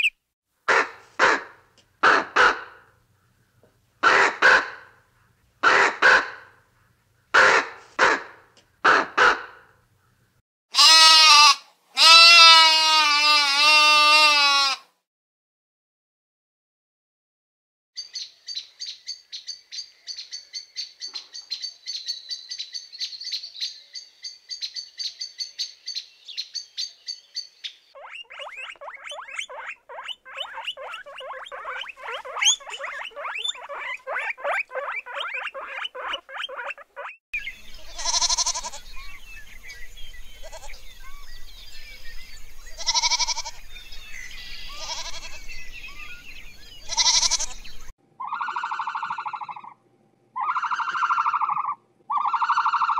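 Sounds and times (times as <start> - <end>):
goats bleating: 10.8 - 14.8, 37.9 - 38.9, 42.8 - 43.6, 44.8 - 45.4, 46.9 - 47.7
guinea pigs squeaking: 28.0 - 37.2, 48.2 - 49.7, 50.4 - 52.9
small animal chirping: 28.0 - 37.2, 48.2 - 49.8, 50.4 - 52.9.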